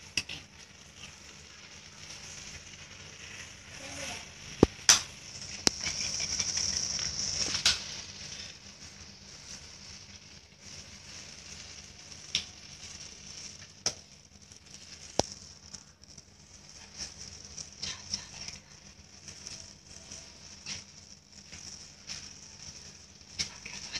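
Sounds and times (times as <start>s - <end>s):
matches crackling: 0.0s - 23.9s
steady hiss: 0.0s - 23.9s
sharp pops: 4.5s - 8.0s, 13.6s - 14.1s.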